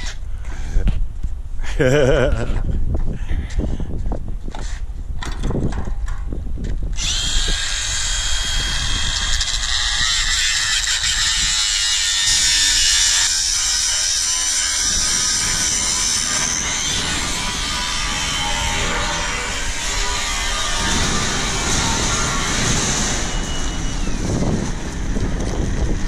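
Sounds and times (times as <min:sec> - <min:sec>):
angle grinder grinding steel: 0:07.0 - 0:25.6.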